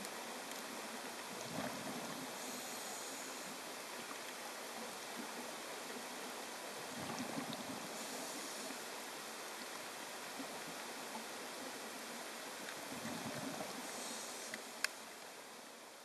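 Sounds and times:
underwater hiss: 0:01.4 - 0:04.2, 0:06.8 - 0:09.8, 0:12.6 - 0:15.1.

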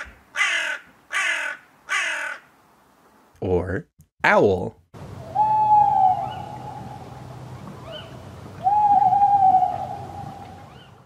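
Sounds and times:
owl hooting: 0:05.2 - 0:11.0.

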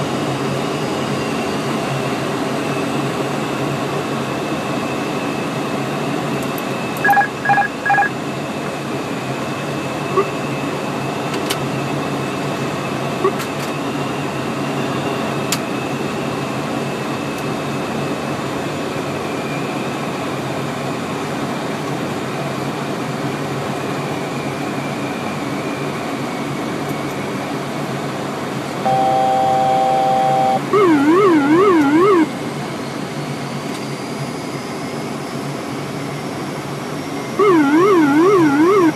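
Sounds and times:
aircraft engine drone: 0:00.0 - 0:38.9
short electronic beeps: 0:07.0 - 0:08.1, 0:28.9 - 0:32.3, 0:37.4 - 0:38.9
warbling cockpit alert tone: 0:07.0 - 0:08.1, 0:28.8 - 0:32.3, 0:37.4 - 0:38.9
steady chord-like tone: 0:28.8 - 0:32.3.

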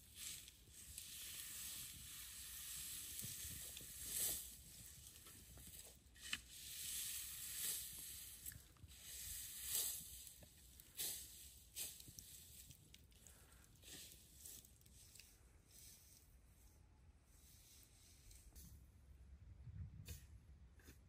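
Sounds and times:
faint fire crackles: 0:00.0 - 0:16.3
embers hissing softly: 0:00.0 - 0:18.9.

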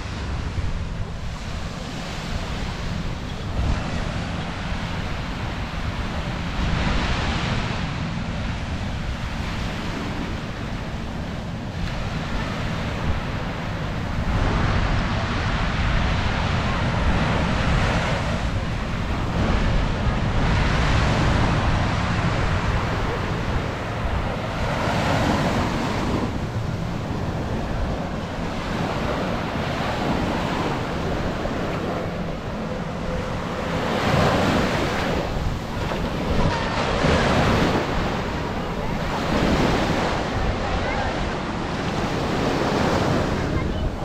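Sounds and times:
ocean waves breaking on sand: 0:00.0 - 0:44.0
wind buffeting microphone: 0:00.0 - 0:44.0.

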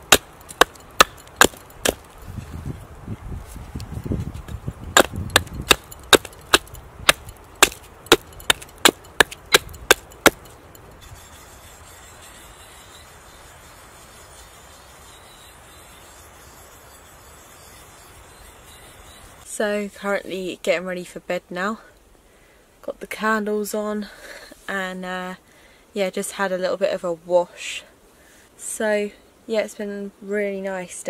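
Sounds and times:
hatchet chopping wood: 0:00.0 - 0:02.1, 0:04.9 - 0:10.6
sharpening stone rubbing on blade: 0:09.6 - 0:19.4.

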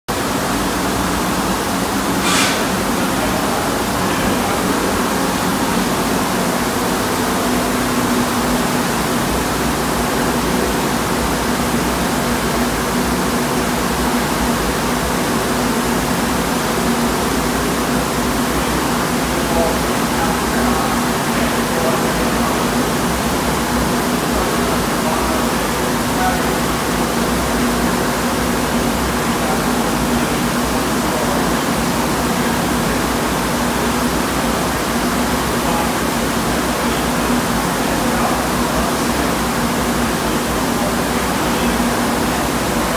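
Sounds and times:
steady rush of air: 0:00.1 - 0:42.9
powder spray gun hissing: 0:02.1 - 0:03.8.

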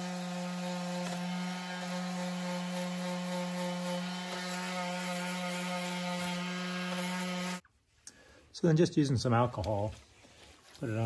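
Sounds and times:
electric sander motor hum: 0:00.0 - 0:07.6.

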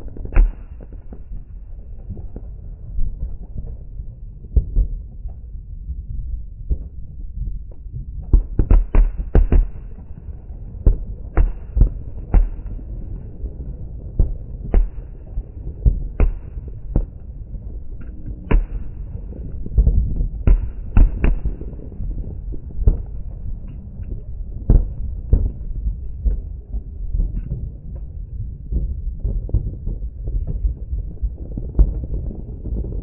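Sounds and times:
low background rumble: 0:00.0 - 0:33.0
fireworks bangs: 0:18.4 - 0:23.4.

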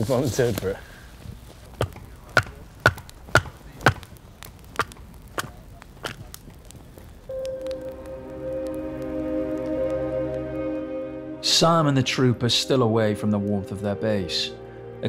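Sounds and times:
axe splitting firewood: 0:01.6 - 0:06.4.

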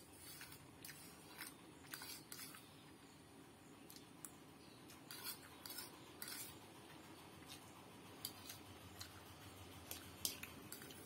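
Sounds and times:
fork scraping and tapping plate: 0:05.0 - 0:06.6.

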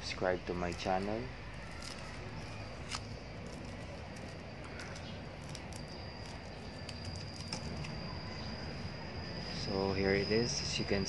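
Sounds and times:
steady low hum: 0:00.0 - 0:11.0
thin high tone: 0:00.0 - 0:11.0
tape peeling off plastic: 0:01.6 - 0:08.0.

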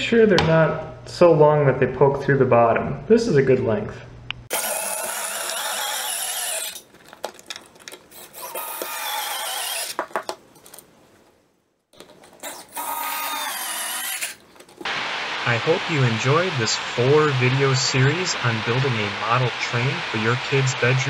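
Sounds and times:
cordless screwdriver driving screws: 0:08.2 - 0:10.0.

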